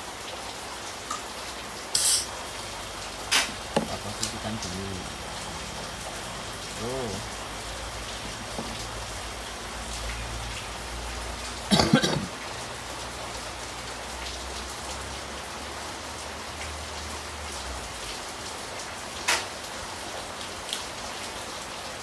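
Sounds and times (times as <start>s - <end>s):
compressor humming: 3.5s - 9.4s.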